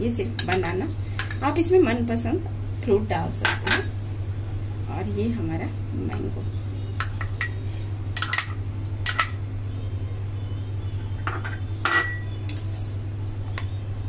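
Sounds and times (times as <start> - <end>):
steady low hum: 0.0 - 14.0
spoon clinking against glass bowls: 8.2 - 9.4, 11.2 - 13.4.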